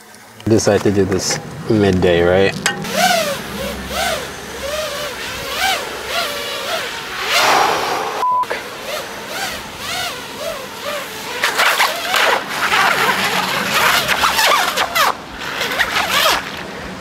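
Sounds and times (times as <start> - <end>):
rising-and-falling tone: 7.1 - 8.6
steady beep: 8.2 - 8.5.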